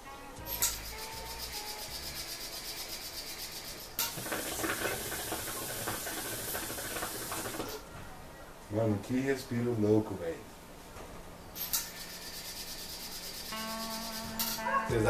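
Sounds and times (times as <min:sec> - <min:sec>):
hookah water bubbling: 0:04.1 - 0:07.9.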